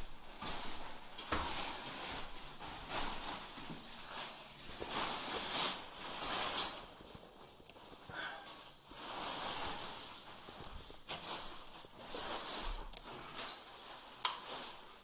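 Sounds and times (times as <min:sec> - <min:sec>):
plastic tarpaulin rustling: 0:00.0 - 0:15.0.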